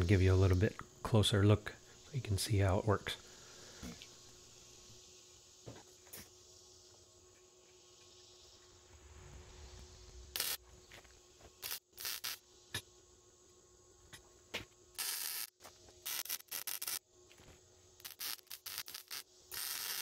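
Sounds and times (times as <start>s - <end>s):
welding arc crackling: 10.0s - 12.4s, 15.0s - 17.0s, 18.0s - 20.0s.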